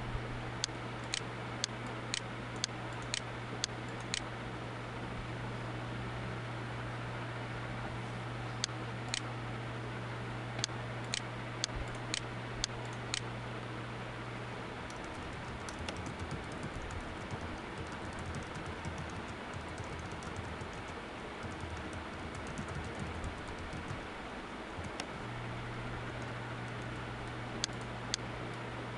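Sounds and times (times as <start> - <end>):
typing on computer keyboard: 14.9 - 24.0, 24.8 - 25.1.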